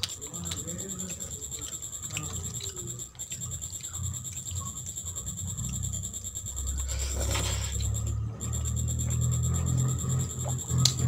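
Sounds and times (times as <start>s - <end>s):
small clicks: 0.0s - 6.9s
fingers mixing food on plate: 0.0s - 11.0s.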